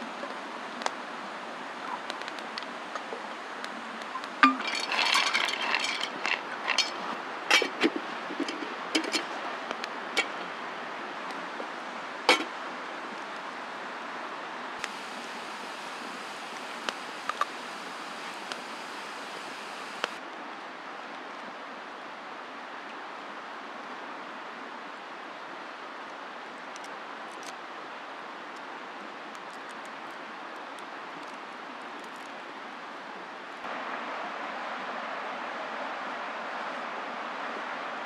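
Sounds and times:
campfire crackling: 4.3s - 7.6s, 14.8s - 20.2s.

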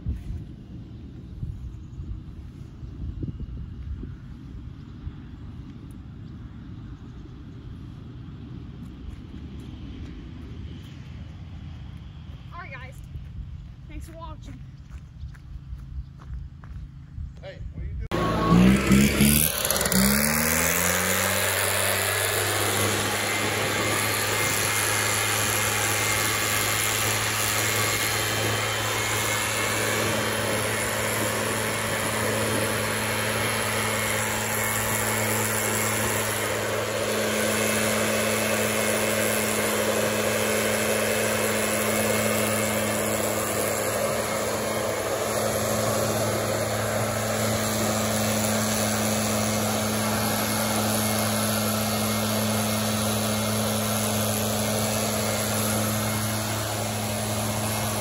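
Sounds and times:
air rushing from nozzle: 18.1s - 58.0s
leaf blower engine running: 18.1s - 58.0s.

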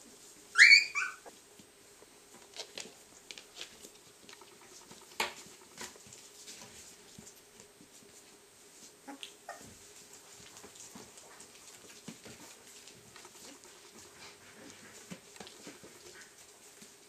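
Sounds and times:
puppies rustling on bedding: 0.0s - 17.0s
puppy squeaks: 0.6s - 1.3s.

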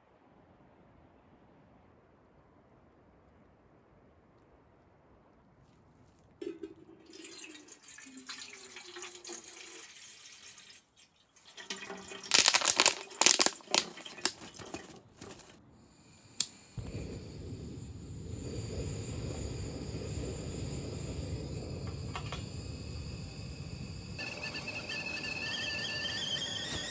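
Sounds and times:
water pouring into metal kettle: 6.4s - 15.5s
gas burner rushing: 12.2s - 26.9s
clatters and knocks: 12.3s - 15.6s.

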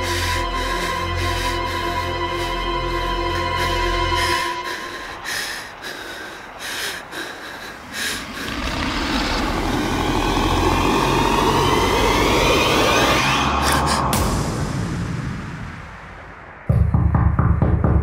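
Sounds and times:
rumbling swell with whooshing tones: 7.6s - 16.7s.

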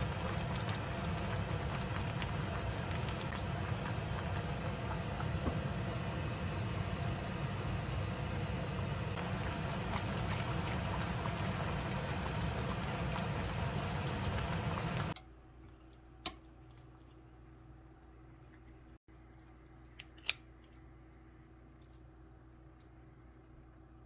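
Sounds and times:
stew boiling and bubbling: 0.0s - 24.0s
kitchen scissors snip: 19.9s - 20.5s.

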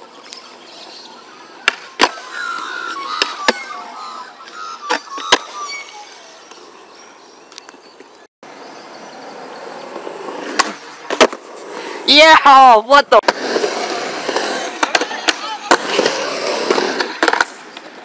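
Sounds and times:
skateboard wheels rolling on concrete: 0.0s - 18.0s
skateboard clacks popping and landing: 10.5s - 11.4s, 14.3s - 18.0s.

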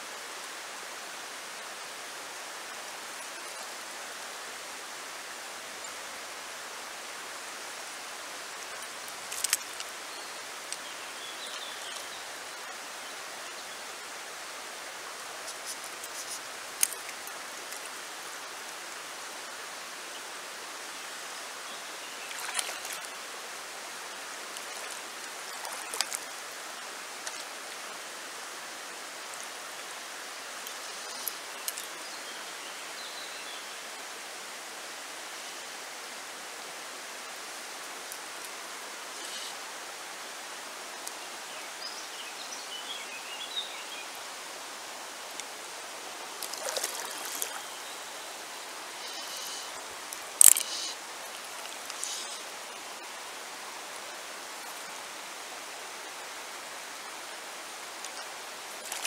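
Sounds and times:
river water over stones: 0.0s - 59.0s.

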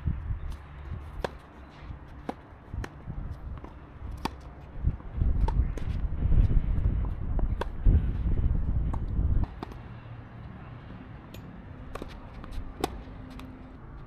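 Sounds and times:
tennis ball struck by rackets: 1.0s - 6.0s, 6.9s - 8.0s, 8.8s - 9.9s, 11.8s - 13.5s.

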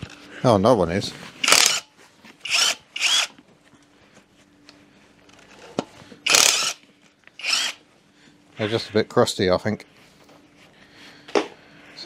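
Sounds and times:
impact gun bursts: 1.4s - 1.8s, 6.3s - 6.8s.

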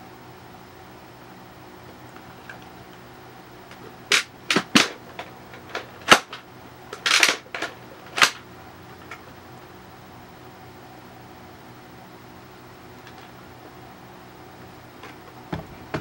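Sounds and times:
plastic clicks and clacks: 3.7s - 8.4s
plastic rattling: 3.7s - 8.4s.

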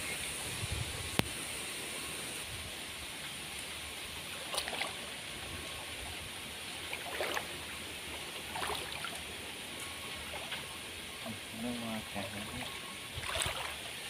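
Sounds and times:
stream water trickling: 0.0s - 14.0s
small water splashes: 4.2s - 10.8s, 12.3s - 14.0s.

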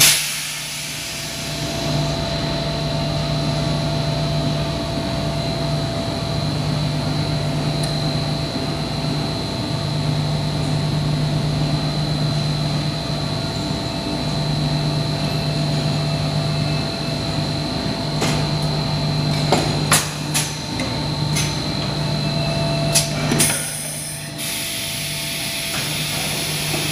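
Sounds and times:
air hiss: 0.0s - 2.0s
steady high whine: 0.0s - 26.9s.

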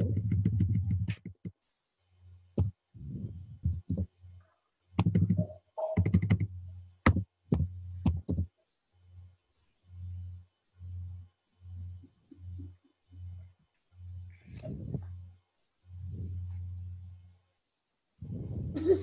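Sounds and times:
low electrical hum: 0.0s - 19.0s
keyboard keys clicking: 5.0s - 6.5s.

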